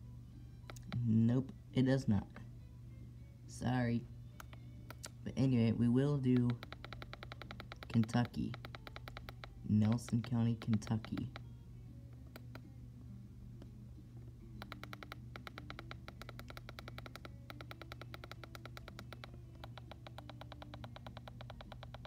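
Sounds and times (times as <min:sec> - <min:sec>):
fast radio ticking: 0:06.3 - 0:11.4.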